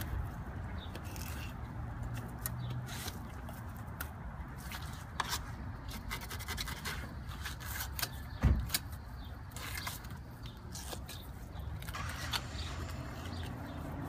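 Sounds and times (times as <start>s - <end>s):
knife slicing and scraping fish: 0.9s - 3.6s, 4.6s - 8.9s, 9.5s - 11.5s
dull thump: 8.4s - 8.8s.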